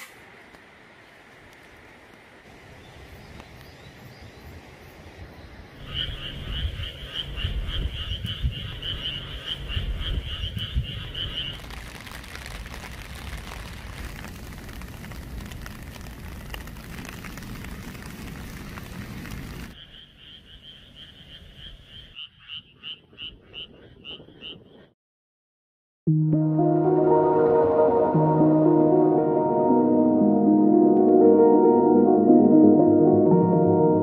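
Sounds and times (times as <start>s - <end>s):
frogs trilling: 5.8s - 11.8s, 19.7s - 24.9s
rain falling on puddle: 10.1s - 19.8s.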